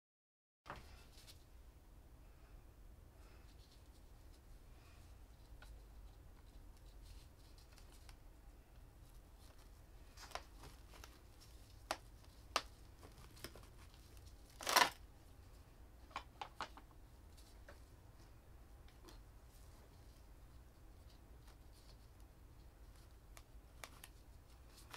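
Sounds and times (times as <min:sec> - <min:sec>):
plant rustling: 0:09.0 - 0:15.7.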